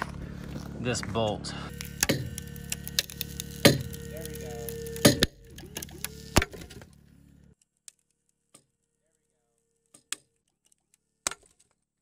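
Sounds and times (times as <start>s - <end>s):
rock cracking and popping: 0.0s - 7.0s
steady low hum: 0.0s - 7.6s.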